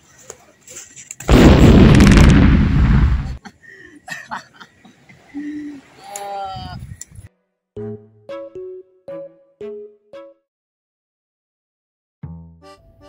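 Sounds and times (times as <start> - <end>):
loud explosion-like blast: 1.3 - 3.4.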